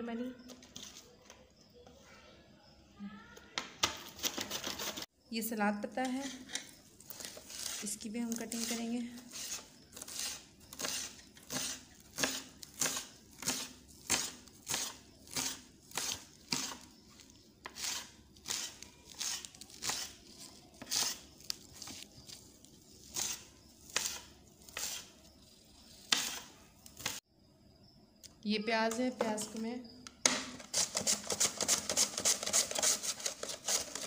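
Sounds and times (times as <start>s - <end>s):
knife slicing crisp lettuce: 7.0s - 27.2s.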